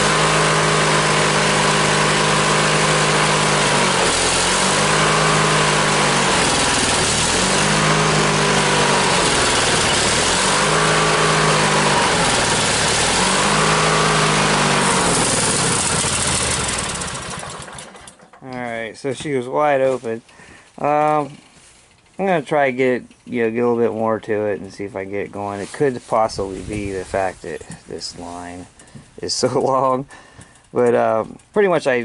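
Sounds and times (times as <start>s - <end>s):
lawn mower engine surging: 0.0s - 18.5s.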